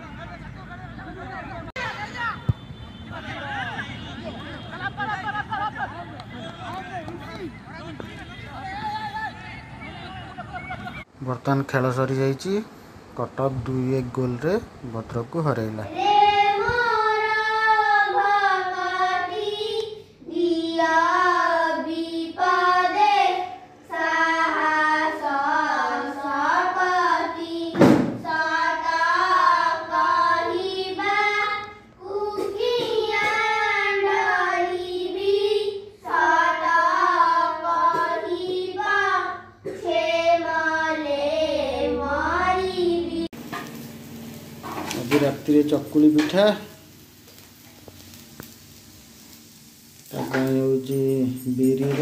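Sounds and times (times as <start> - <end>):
children singing a prayer: 15.8 - 43.3.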